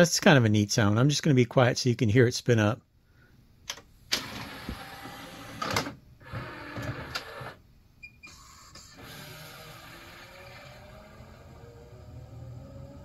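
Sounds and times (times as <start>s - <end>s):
disc spinning hum with whine: 4.0s - 13.0s
disc tray motor whirring: 8.3s - 13.0s.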